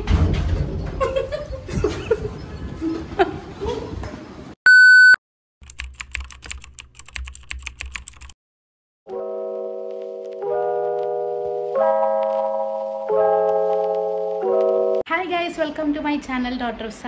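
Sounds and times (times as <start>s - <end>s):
crackling clicking static: 12.1s - 15.0s.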